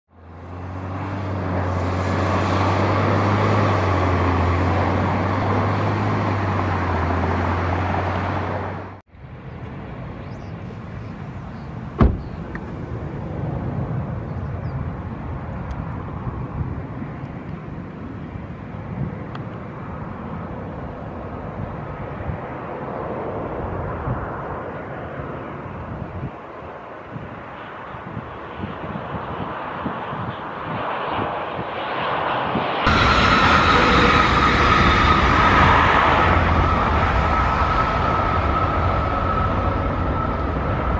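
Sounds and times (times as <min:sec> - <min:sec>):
loud jet engine noise: 0:00.1 - 0:40.9
jet engines running quietly: 0:09.2 - 0:40.9.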